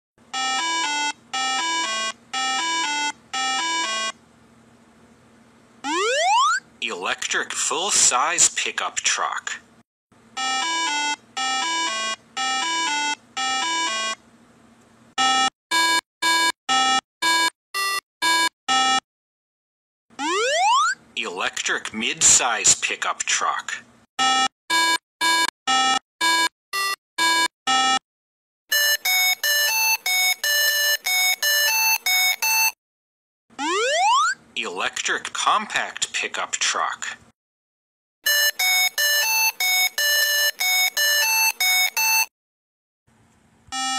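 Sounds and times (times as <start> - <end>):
retro video game chimes: 28.7 - 32.7, 38.3 - 42.3.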